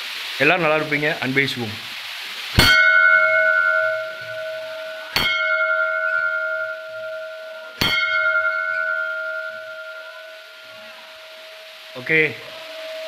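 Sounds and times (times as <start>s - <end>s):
temple bell ringing: 2.6s - 13.0s.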